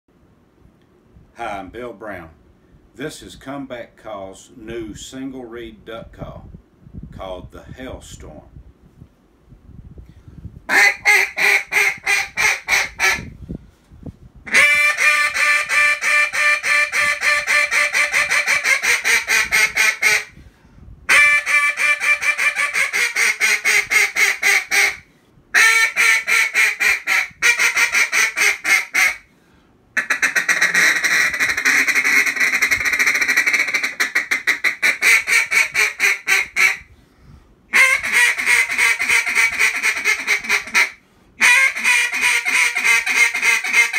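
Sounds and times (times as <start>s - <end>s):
duck call quacking: 10.7s - 13.3s, 14.5s - 20.3s, 21.1s - 25.0s, 25.6s - 29.2s, 30.0s - 36.9s, 37.7s - 43.9s.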